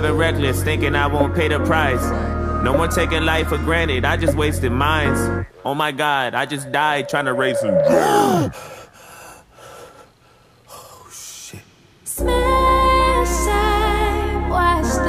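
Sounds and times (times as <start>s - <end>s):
music with chords and deep bass: 0.0s - 5.5s.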